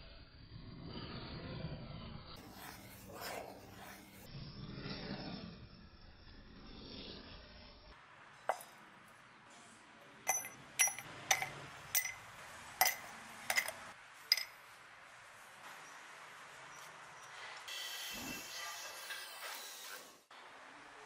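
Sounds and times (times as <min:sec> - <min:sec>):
metal fittings clinking into crucible: 0:08.5 - 0:08.7, 0:10.3 - 0:14.6.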